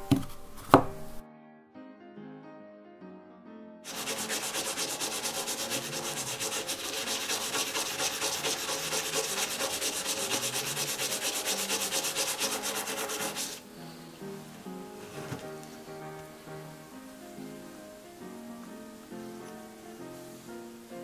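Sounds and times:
toothbrush scrubbing a coin: 3.9s - 13.6s.

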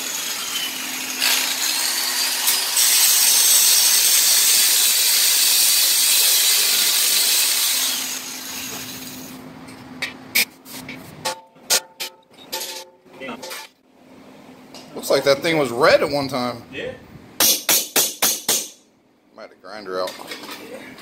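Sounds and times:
angle grinder grinding metal: 0.0s - 9.3s.

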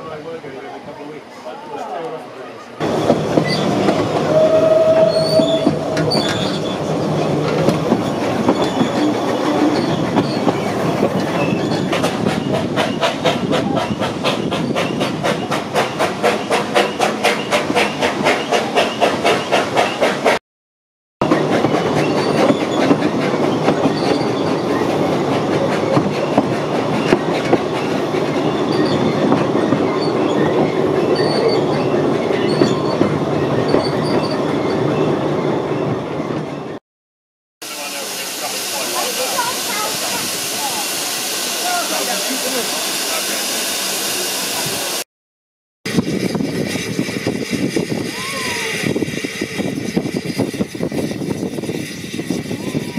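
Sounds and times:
train rumble: 2.8s - 20.4s, 21.2s - 36.8s, 37.6s - 45.0s, 45.9s - 52.9s
train wheels clattering on rails: 2.8s - 20.4s, 21.2s - 36.6s
faint high squeaks: 4.9s - 6.9s.

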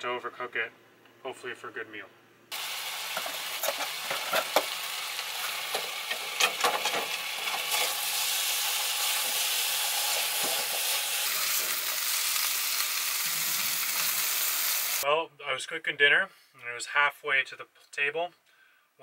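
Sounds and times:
vegetables sizzling in a frying pan: 2.5s - 15.0s.

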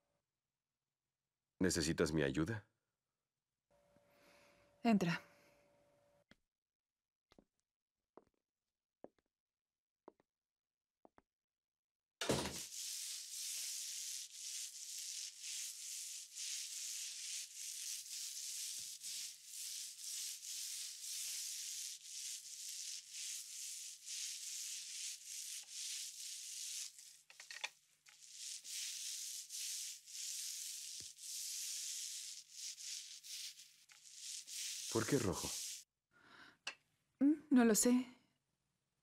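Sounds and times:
paint rollers rolling on wall: 12.2s - 35.8s.

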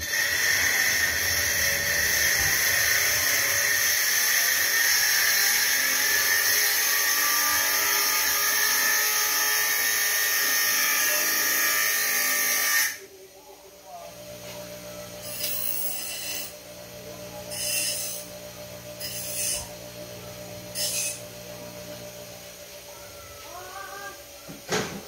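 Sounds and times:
power tool whining: 0.0s - 13.0s, 15.0s - 16.6s, 17.4s - 22.0s.

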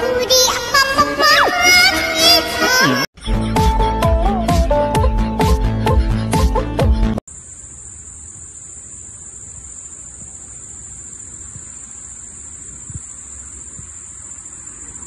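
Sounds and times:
high-pitched insect chorus: 7.3s - 15.0s.

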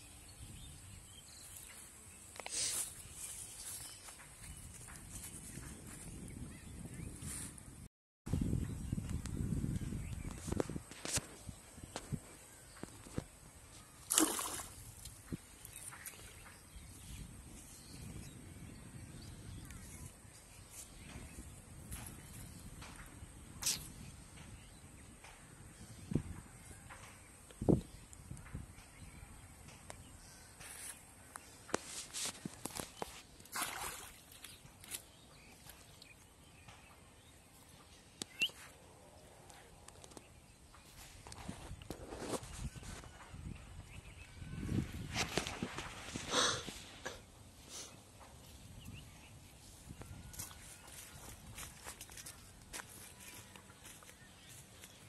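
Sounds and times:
faint outdoor background: 0.0s - 55.0s
short water splash: 14.0s - 14.8s, 33.5s - 34.5s
rising bird chirp: 38.2s - 38.7s.

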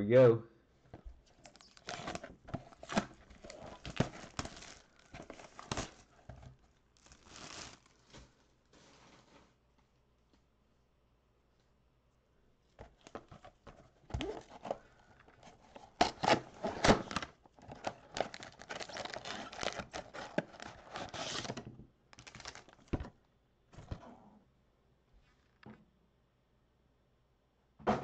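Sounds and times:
cardboard tearing: 1.3s - 6.3s, 7.0s - 8.2s, 15.4s - 21.6s, 22.2s - 23.0s
foil packs crinkling: 1.3s - 9.4s, 14.1s - 21.6s, 22.2s - 23.0s.

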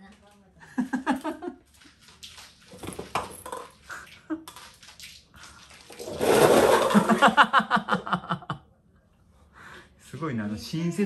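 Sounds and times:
paper cups clattering: 1.0s - 7.4s.

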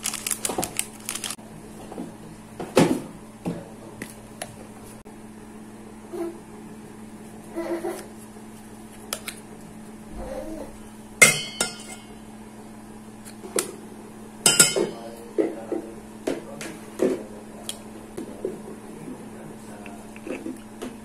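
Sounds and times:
spoon clinking metal bowl: 11.2s - 12.2s, 14.5s - 15.0s
utensils knocking and tapping: 14.5s - 15.0s.

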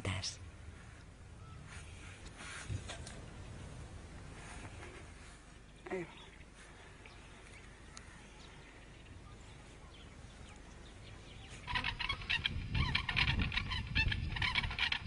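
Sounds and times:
faint background hiss: 0.0s - 13.0s.

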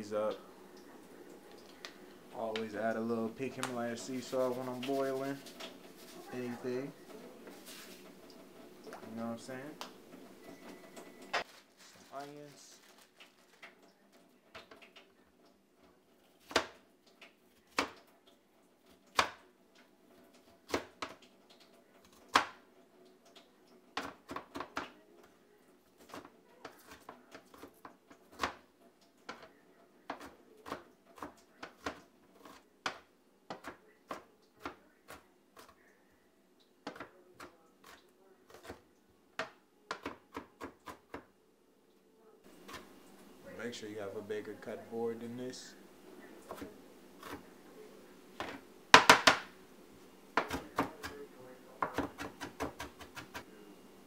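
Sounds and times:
knife chopping on plastic board: 39.4s - 41.3s, 48.4s - 49.5s, 50.4s - 51.2s, 51.8s - 53.4s.

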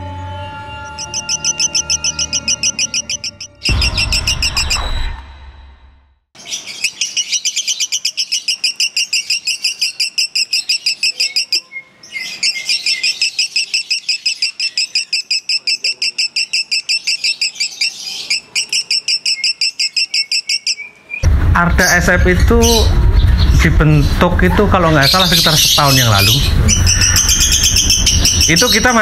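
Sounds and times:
lovebird chattering trill: 0.9s - 5.0s, 6.6s - 21.0s, 24.9s - 29.0s.

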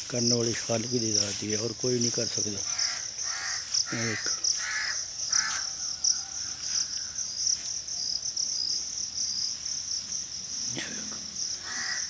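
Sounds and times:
insects trilling: 0.0s - 12.0s
crow cawing: 2.6s - 7.2s, 11.5s - 12.0s.

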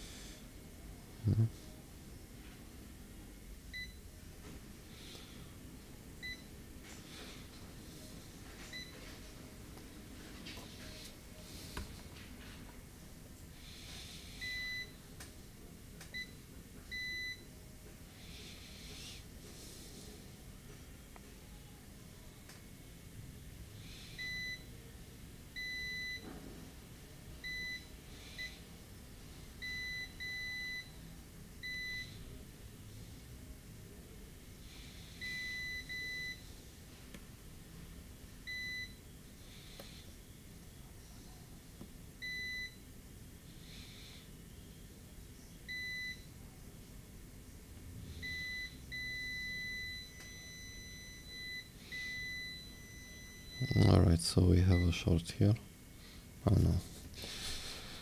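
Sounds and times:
multimeter beeping: 48.2s - 54.0s.

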